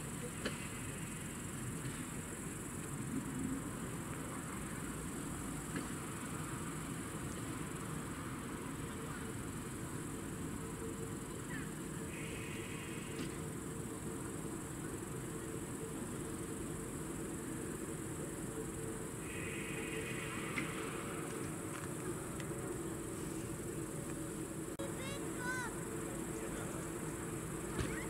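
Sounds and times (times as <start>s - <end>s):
crickets chirping: 0.0s - 28.0s
distant diesel railcar hum: 0.0s - 28.0s
high buzzing insect trill: 9.4s - 28.0s.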